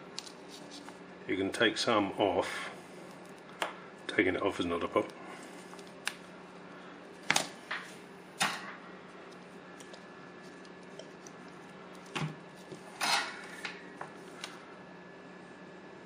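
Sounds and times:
low steady hum: 0.0 - 16.0
solder crackles and clicks: 4.9 - 6.3.

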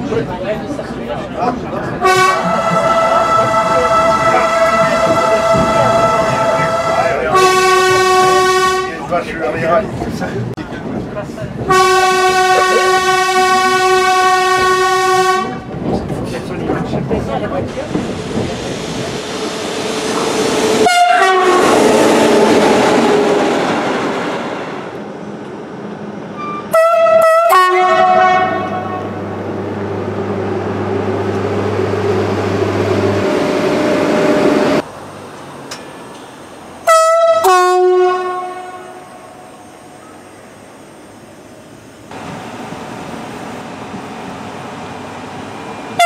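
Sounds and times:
train rumbling on track: 0.0 - 46.0
train horn blasts: 2.0 - 9.1, 11.7 - 15.7, 20.8 - 22.2, 26.4 - 29.2, 36.8 - 39.5.

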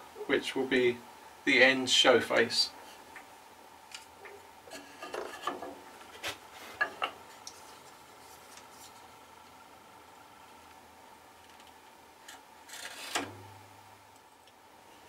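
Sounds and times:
knife scraping wood: 12.2 - 13.2.

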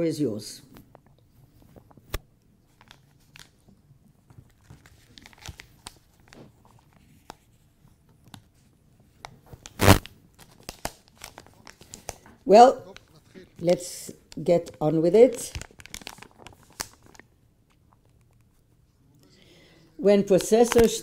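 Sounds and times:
microphone handling clicks and rubbing: 9.3 - 10.1.

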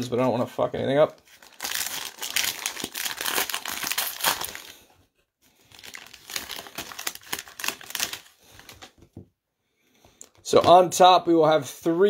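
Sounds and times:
foil wrapper crinkling: 1.3 - 4.9, 5.6 - 8.9.

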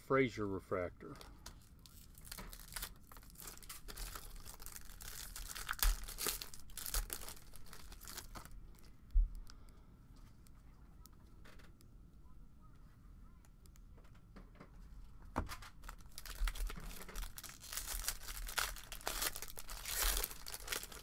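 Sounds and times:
foil wrapper tearing and crinkling: 1.4 - 8.9, 15.5 - 21.0.

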